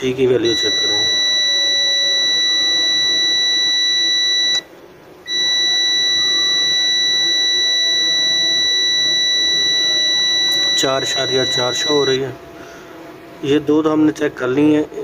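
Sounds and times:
high-pitched continuity beep: 0:00.4 - 0:04.7, 0:05.3 - 0:12.3.

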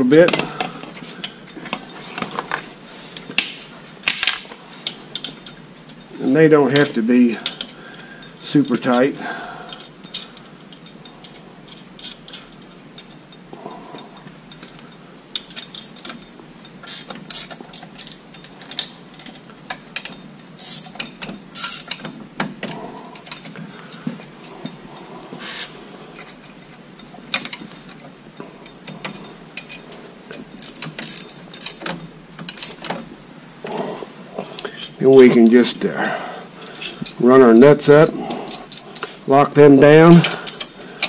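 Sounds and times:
ratchet wrench clicking: 0:16.8 - 0:19.3, 0:20.0 - 0:22.0, 0:30.6 - 0:32.9.

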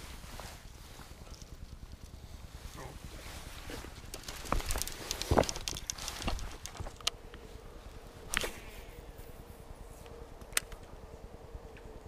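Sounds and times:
person clambering over rocks: 0:02.9 - 0:07.1.

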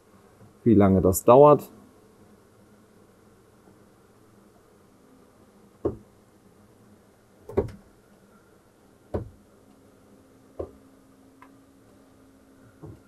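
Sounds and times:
faint steady hum: 0:00.0 - 0:13.0
electric bed mechanism knocking: 0:05.8 - 0:06.1, 0:07.5 - 0:07.8, 0:09.1 - 0:09.4, 0:10.6 - 0:10.8.

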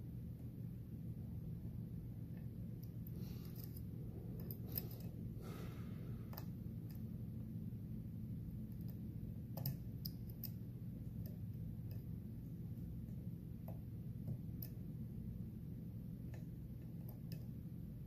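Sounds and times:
steady low hum: 0:00.0 - 0:18.0
lock pick clicks and scrapes: 0:03.4 - 0:05.2.

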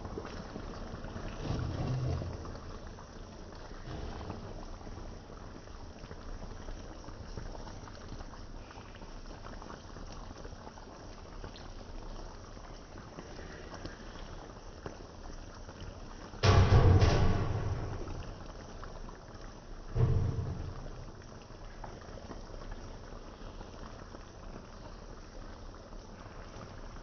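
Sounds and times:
sauce bubbling and popping: 0:00.0 - 0:27.0
low thump: 0:16.4 - 0:18.8, 0:19.9 - 0:21.5.

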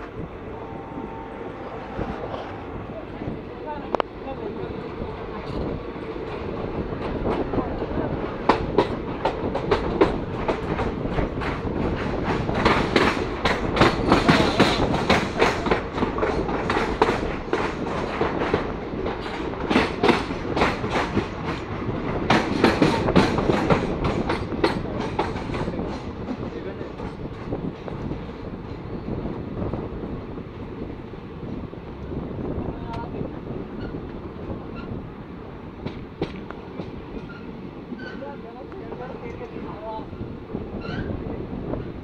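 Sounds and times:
train rumble: 0:00.0 - 0:42.0
wheels clacking over rail joints: 0:03.6 - 0:29.0, 0:32.8 - 0:39.9.

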